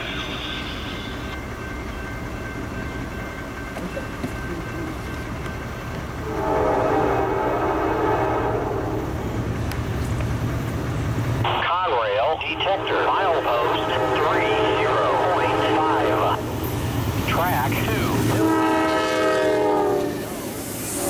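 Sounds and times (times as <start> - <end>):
diesel freight train rumbling: 0.0 - 21.0
locomotive air horn: 6.2 - 9.1, 12.9 - 16.4, 18.3 - 20.4.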